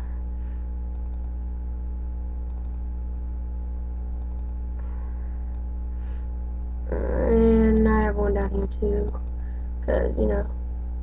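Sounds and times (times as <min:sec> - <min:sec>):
low electrical hum: 0:00.0 - 0:11.0
faint computer mouse clicks: 0:00.9 - 0:01.3, 0:02.5 - 0:02.8, 0:04.2 - 0:04.6.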